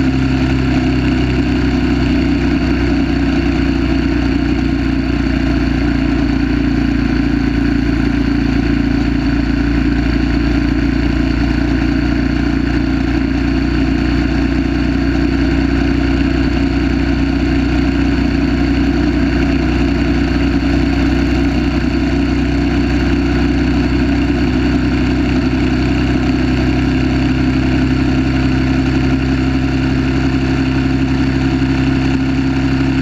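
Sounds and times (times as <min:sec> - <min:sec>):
motorcycle engine running hard: 0:00.0 - 0:33.0.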